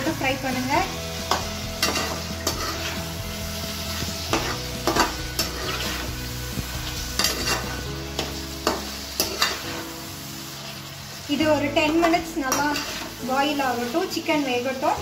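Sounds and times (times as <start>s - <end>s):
chicken sizzling in pan: 0.0s - 15.0s
spatula scraping pan: 0.4s - 9.9s, 11.9s - 13.4s.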